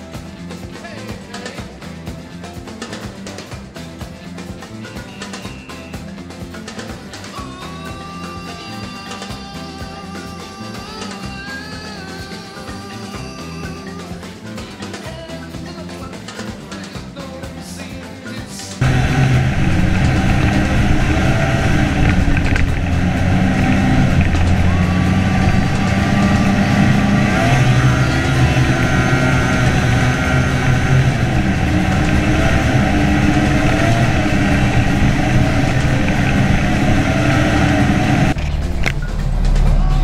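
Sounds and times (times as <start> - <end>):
snowmobile engine running: 18.8 - 40.0.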